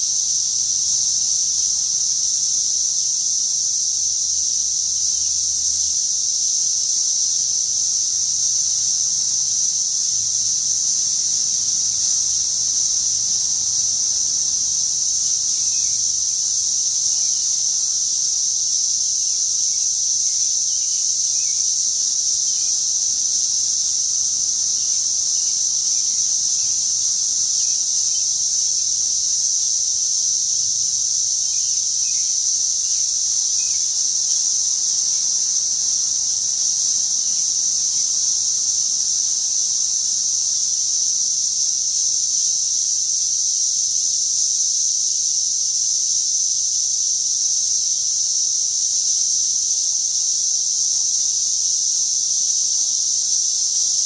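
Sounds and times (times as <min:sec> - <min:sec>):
cicadas droning: 0:00.0 - 0:54.0.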